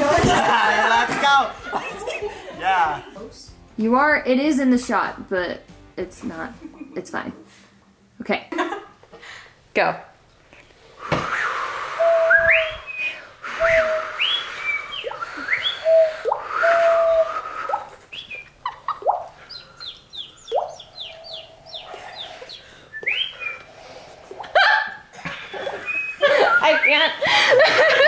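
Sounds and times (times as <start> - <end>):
man whistling birdsong: 11.2 - 18.5, 19.5 - 23.7, 25.7 - 27.1.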